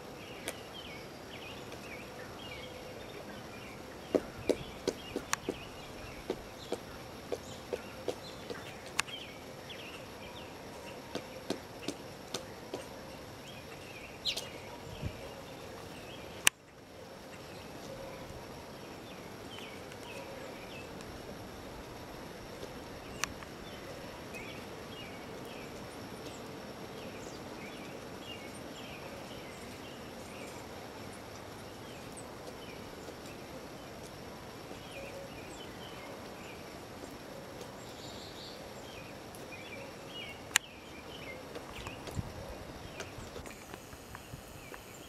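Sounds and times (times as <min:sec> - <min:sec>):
woodpecker knocking on wood: 0:04.1 - 0:09.0, 0:11.1 - 0:12.9.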